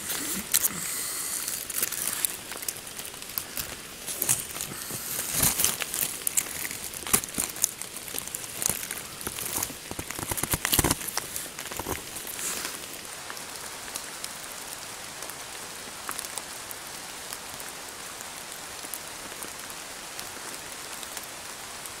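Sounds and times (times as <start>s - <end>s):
tarp crinkling and rustling: 0.0s - 14.7s.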